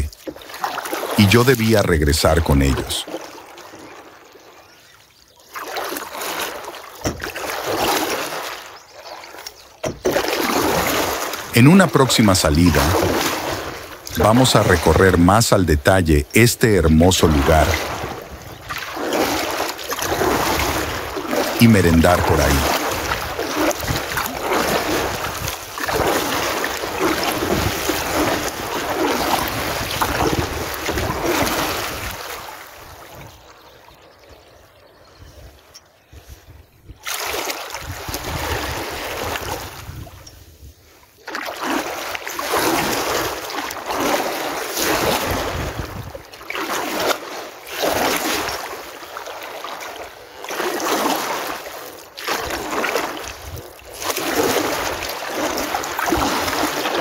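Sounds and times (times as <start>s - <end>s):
paddle splashing in water: 0.0s - 57.0s
wind buffeting microphone: 22.4s - 33.5s, 37.8s - 40.8s, 45.0s - 46.2s.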